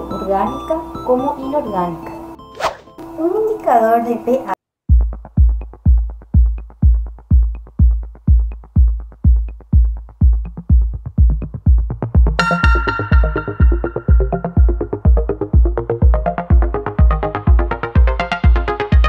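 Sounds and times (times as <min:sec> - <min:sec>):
bright synth melody: 0:00.0 - 0:03.7, 0:12.4 - 0:18.6
kick drum beat: 0:04.8 - 0:19.0.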